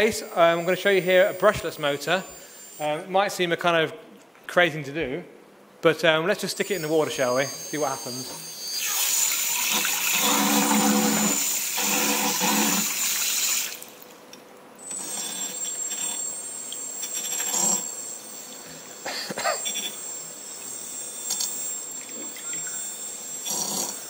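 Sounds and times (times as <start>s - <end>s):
motor whining underwater: 6.6s - 14.1s, 14.8s - 24.0s.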